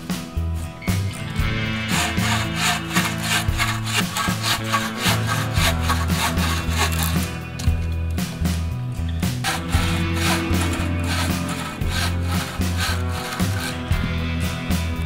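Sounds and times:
background music: 0.0s - 15.0s
bow saw cutting wood: 1.1s - 7.7s, 9.3s - 14.1s.

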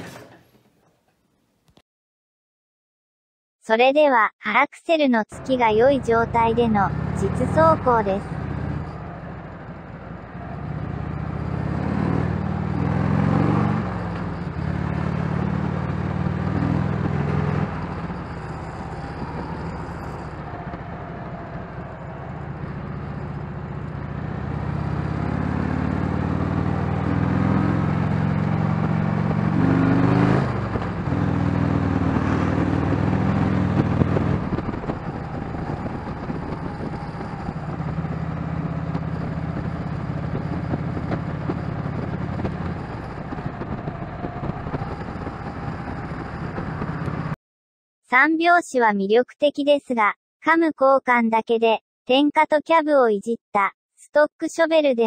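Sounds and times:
motorcycle engine revving: 5.4s - 47.4s.

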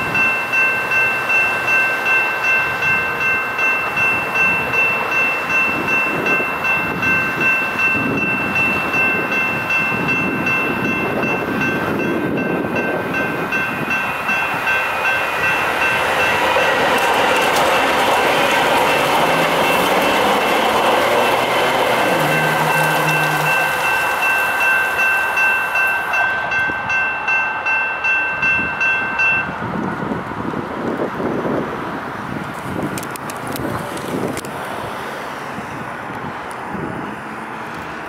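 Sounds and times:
electronic crossing bell ringing: 0.0s - 29.6s
approaching train rumble: 0.0s - 38.0s.

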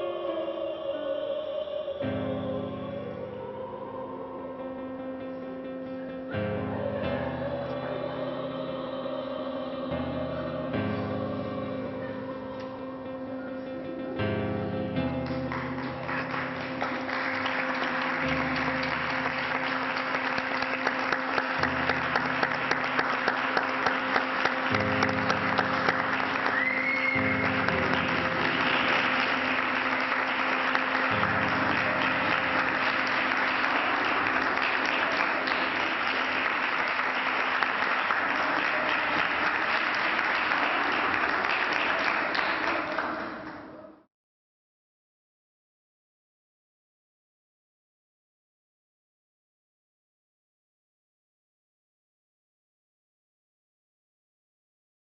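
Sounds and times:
audience applauding: 15.2s - 43.8s
short whistle: 26.5s - 27.4s.

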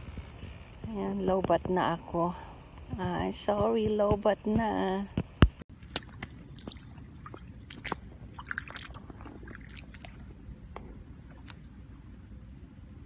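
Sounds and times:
boot splashing in shallow water: 5.7s - 11.7s.

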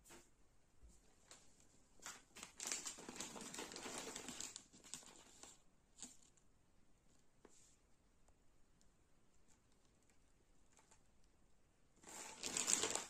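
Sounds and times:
plastic bag crinkling: 2.1s - 6.3s, 12.0s - 13.0s.

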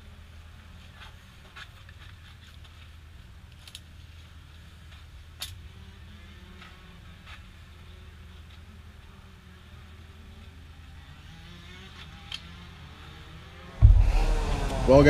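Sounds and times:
low outdoor rumble: 13.8s - 15.0s.

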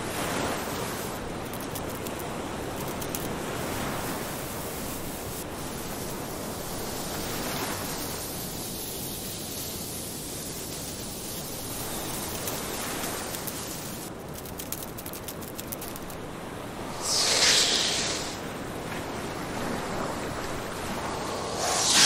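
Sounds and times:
wind: 0.0s - 22.0s
surf rushing: 16.7s - 22.0s.

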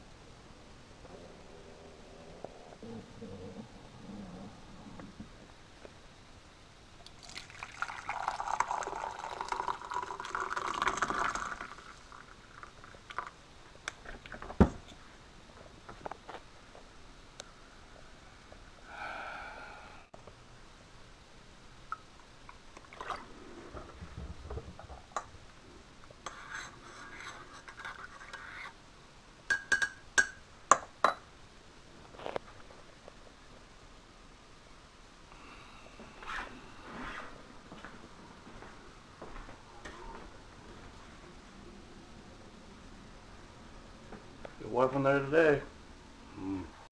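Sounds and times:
coffee pouring into a mug: 7.0s - 13.4s, 21.9s - 23.8s
spoon stirring in ceramic mug: 26.2s - 28.8s
spoon tapping mug: 29.5s - 31.2s.

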